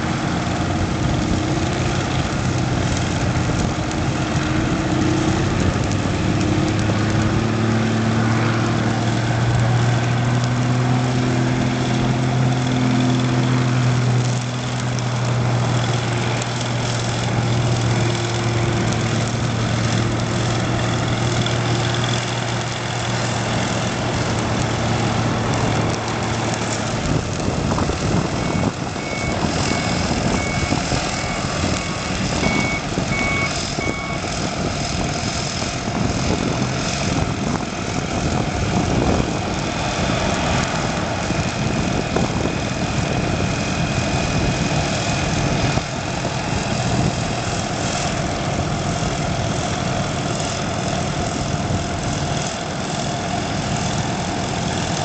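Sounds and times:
reversing alarm beeping: 28.4 - 34.3.

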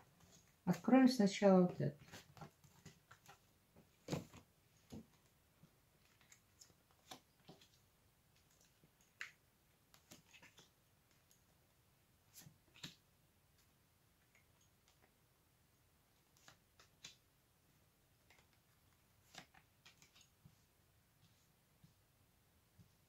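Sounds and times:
playing cards clicking and tapping: 2.0 - 5.3, 6.1 - 7.8, 18.2 - 20.4.

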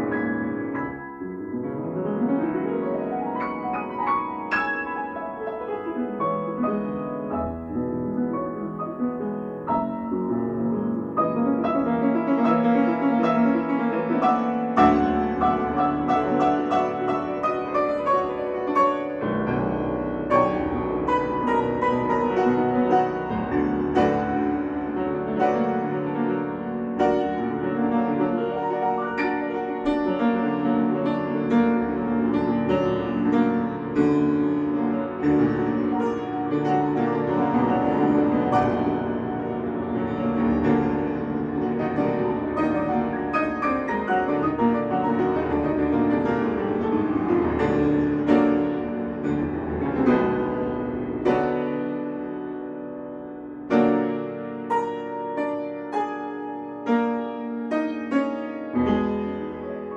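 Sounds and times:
grand piano playing quick notes: 0.0 - 59.9.

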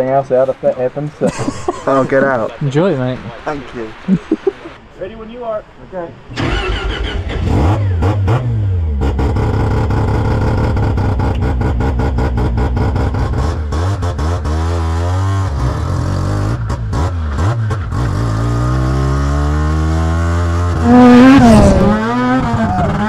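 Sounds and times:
rotary engine revving: 6.3 - 23.0.

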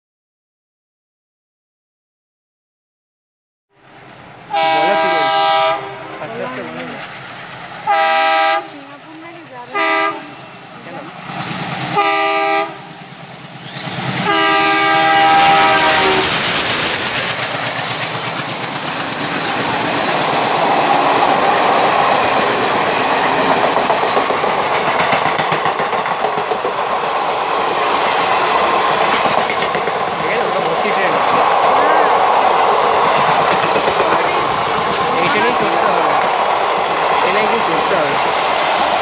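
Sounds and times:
train rushing past: 3.8 - 39.0
locomotive horn blast: 4.5 - 6.6, 7.8 - 8.8, 9.7 - 10.4, 11.9 - 12.9, 14.2 - 16.4
wheels clattering over rail joints: 16.5 - 31.7, 32.9 - 38.2.

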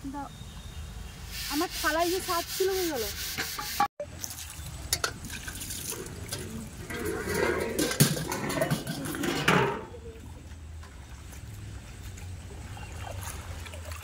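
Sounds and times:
water sloshing and splashing: 4.1 - 14.0.

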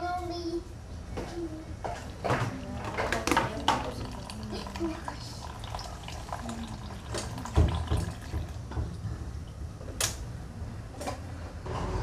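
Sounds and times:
kitchen items clicking and knocking: 1.9 - 4.2.

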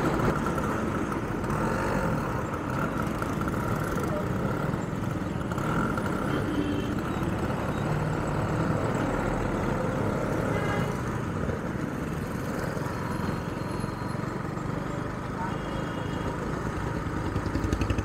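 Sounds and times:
motorcycle engine low rumble: 16.6 - 18.0.

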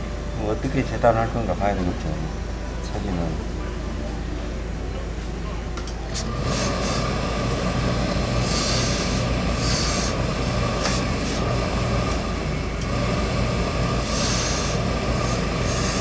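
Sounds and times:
steady low hum: 0.0 - 16.0
steam hissing: 6.2 - 16.0.

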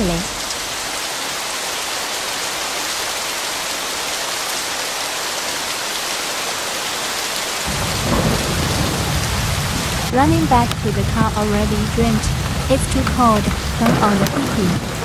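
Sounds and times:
heavy rain hissing: 0.0 - 15.0
low rumble: 7.7 - 15.0.

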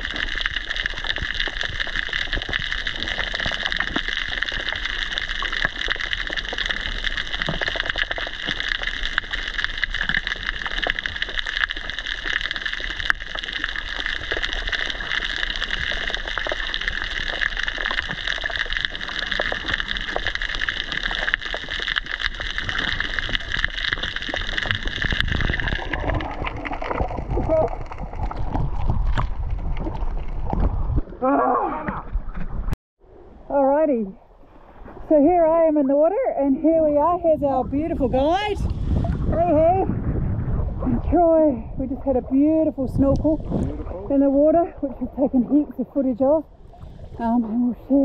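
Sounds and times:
underwater hiss with crackling clicks: 0.0 - 29.3.

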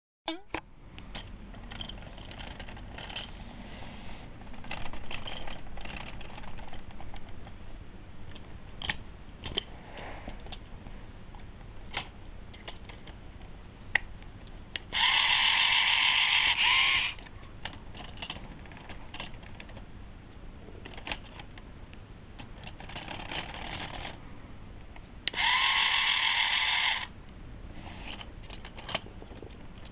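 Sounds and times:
plastic parts clicking and rattling: 1.1 - 3.4, 4.5 - 7.5, 17.0 - 19.8, 20.8 - 21.6, 22.4 - 24.2, 28.1 - 29.9
toy motor and plastic gears whirring: 1.6 - 7.4, 14.8 - 19.8, 20.8 - 21.5, 22.4 - 24.2, 25.3 - 27.1, 27.8 - 29.9.

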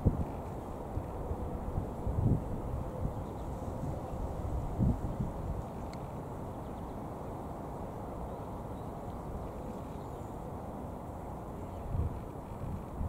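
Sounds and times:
wind buffeting microphone: 0.0 - 6.0, 11.8 - 13.0.

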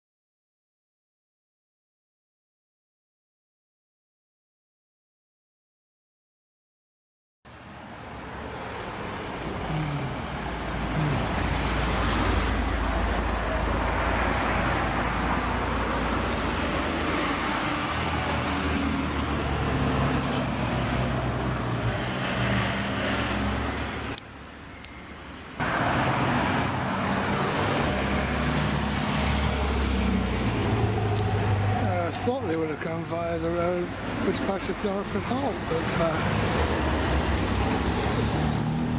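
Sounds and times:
sports cars driving past: 7.8 - 24.2, 25.6 - 32.1, 35.6 - 38.9.

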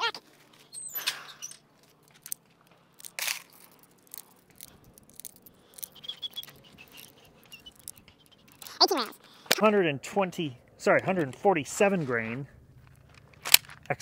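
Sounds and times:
rounds clicking into magazine: 12.8 - 14.0.

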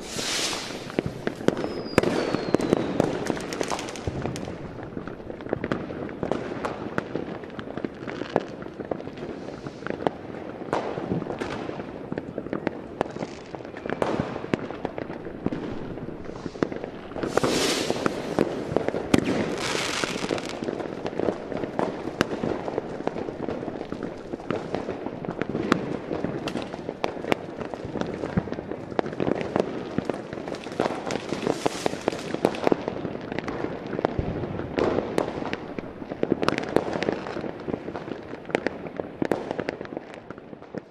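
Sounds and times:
noisy hiss: 0.0 - 1.4, 16.2 - 18.7
dense crackling and pops: 0.0 - 40.9.

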